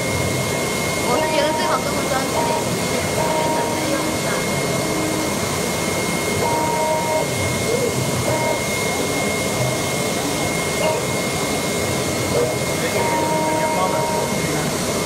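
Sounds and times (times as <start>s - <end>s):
cutting machine rushing with whine: 0.0s - 15.0s
short electronic tones: 6.4s - 7.4s, 8.3s - 8.8s, 13.0s - 14.6s.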